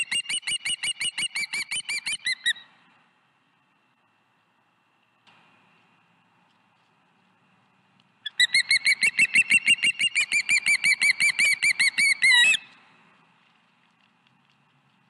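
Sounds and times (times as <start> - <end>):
osprey whistled chirps: 0.0 - 2.7, 8.3 - 12.7.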